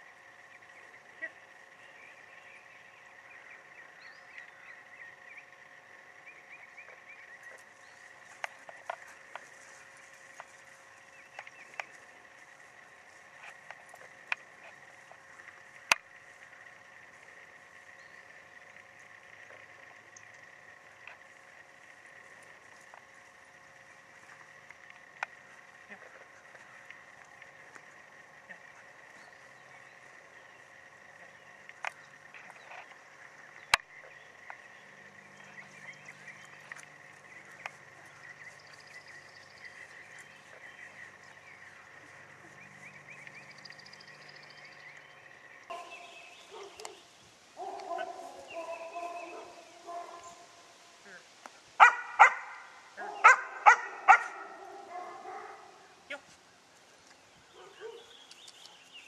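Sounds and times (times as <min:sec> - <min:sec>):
faint high-pitched hum: 0:00.0 - 0:59.0
sharp clicks: 0:11.3 - 0:12.2, 0:15.4 - 0:16.7, 0:31.0 - 0:34.7, 0:58.2 - 0:58.8.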